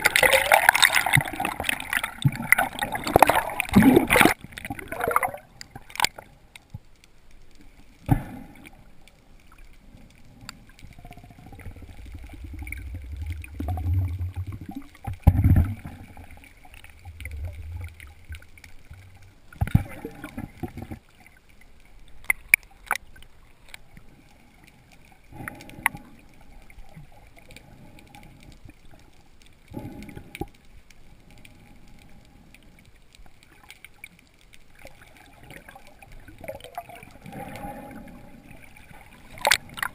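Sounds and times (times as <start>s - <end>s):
underwater gurgling and sloshing: 0.0s - 39.9s
low rumble: 11.0s - 19.5s
sharp knocks underwater: 13.7s - 16.0s.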